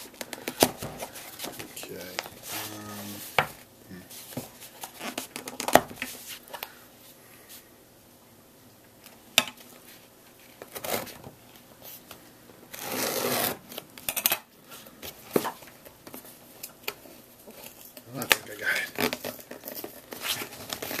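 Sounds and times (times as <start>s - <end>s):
scissors cutting cardboard: 10.6s - 11.2s, 12.7s - 13.8s.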